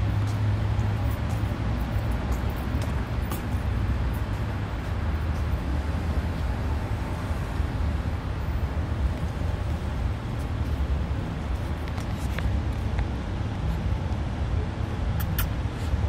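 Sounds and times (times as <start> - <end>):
low urban rumble: 0.0 - 16.0.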